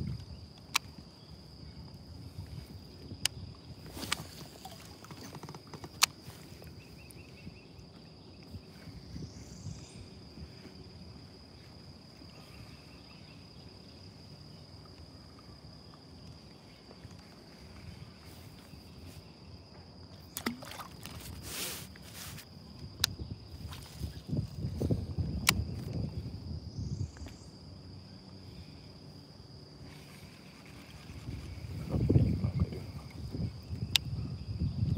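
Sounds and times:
rumble of wind and water: 0.0 - 34.9
water lapping against boat hull: 3.8 - 6.0, 20.2 - 22.4.

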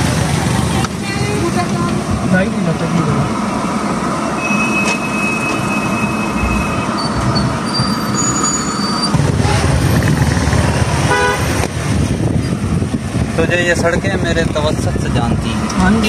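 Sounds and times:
road traffic: 0.0 - 16.0
short pitched tone: 4.4 - 9.6
wind and rain rushing: 9.1 - 15.4.

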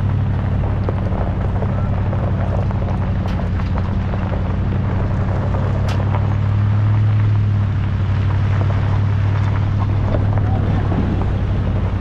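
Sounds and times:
vehicle engine droning: 0.0 - 12.0
clicks and rattles: 0.7 - 4.7, 5.3 - 6.5.

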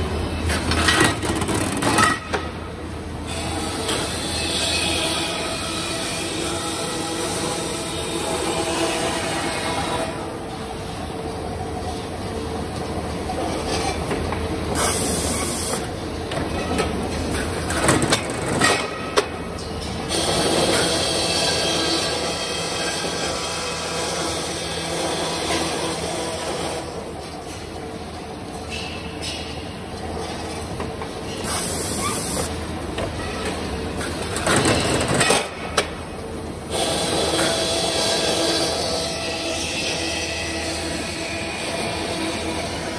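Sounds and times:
hiss: 31.4 - 32.5.

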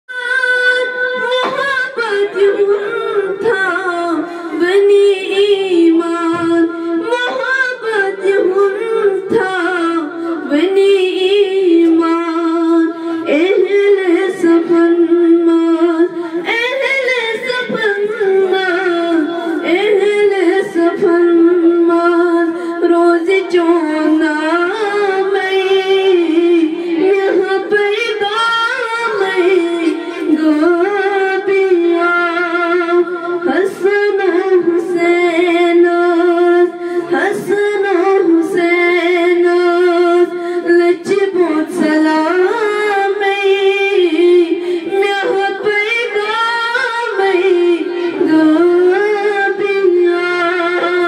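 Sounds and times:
woman singing unaccompanied: 0.1 - 51.0.

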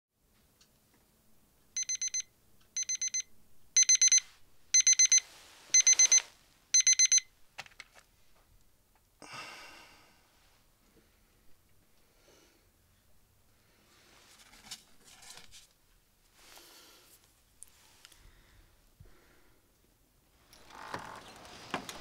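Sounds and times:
alarm clock beeping: 1.8 - 7.3.

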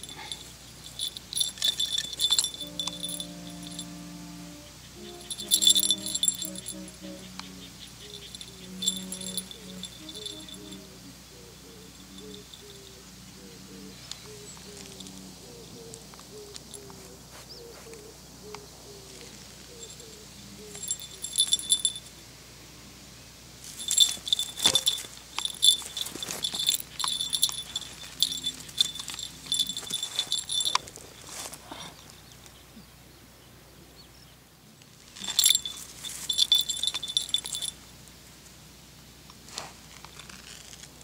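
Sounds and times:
small bell jingling: 0.0 - 11.1, 11.9 - 13.0, 19.7 - 22.2, 23.7 - 31.5, 35.2 - 37.9.

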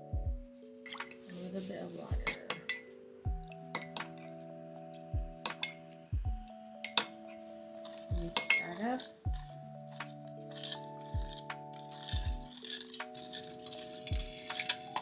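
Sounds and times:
metal spoon clinking on bowl: 0.9 - 1.2, 2.2 - 2.9, 3.8 - 4.3, 5.5 - 5.8, 6.8 - 15.0
whisk scraping in bowl: 7.8 - 15.0.

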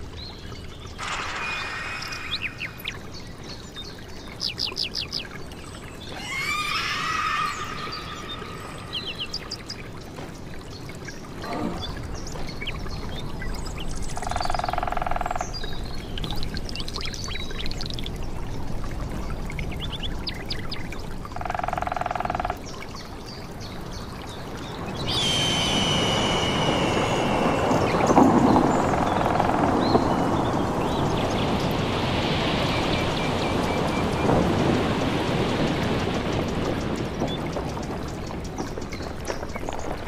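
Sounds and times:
flowing water: 0.0 - 40.0
bird chirps: 25.0 - 30.4
long buzzing call with high tone: 25.1 - 28.1.

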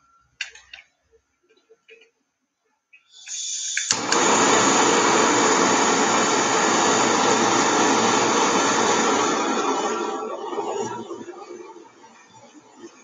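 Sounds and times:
gas hissing: 3.1 - 12.1
torch ignition click: 3.3 - 6.3
torch flame rushing: 3.9 - 11.5.

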